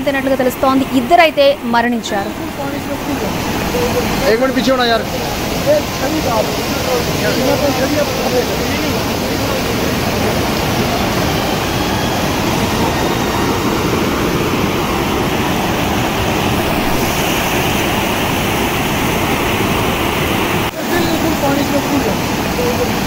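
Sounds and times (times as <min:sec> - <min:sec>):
river rushing: 0:00.0 - 0:23.0.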